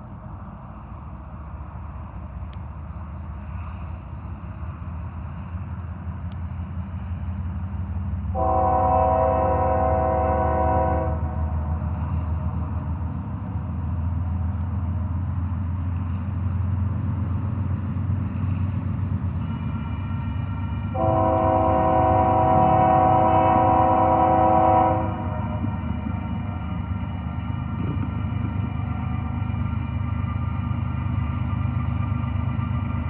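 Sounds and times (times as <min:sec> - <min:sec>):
train low rumble: 0:00.0 - 0:33.0
train chord horn blast: 0:08.3 - 0:11.5, 0:20.9 - 0:25.7.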